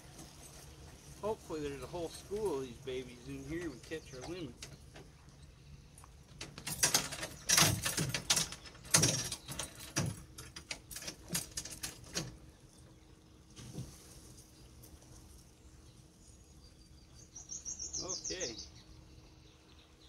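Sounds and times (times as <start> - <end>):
knocks and rattles: 6.2 - 12.5.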